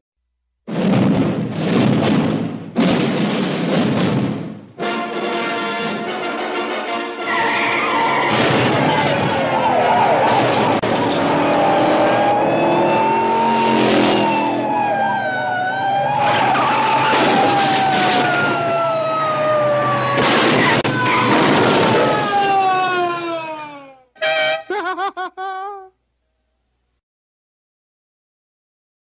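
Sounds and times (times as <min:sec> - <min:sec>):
tyres screeching: 0:07.2 - 0:13.7
police siren wailing: 0:07.2 - 0:24.1.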